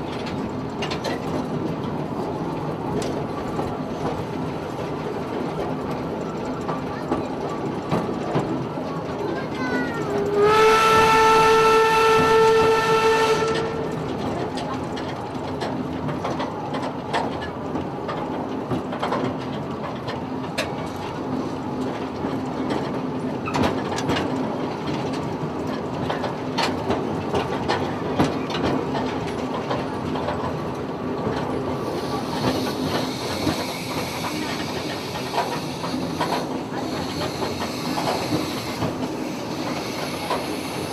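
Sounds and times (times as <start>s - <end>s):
clicks and clanks from wheels: 0.0s - 10.4s, 13.4s - 40.9s
train rumbling: 0.0s - 40.9s
steam locomotive whistle: 10.2s - 14.0s
steam hissing: 31.6s - 40.9s.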